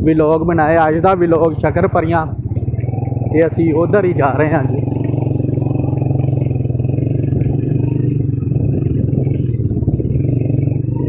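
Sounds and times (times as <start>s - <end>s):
clatter over rough ground: 0.0s - 11.0s
motorcycle engine running: 0.0s - 11.0s.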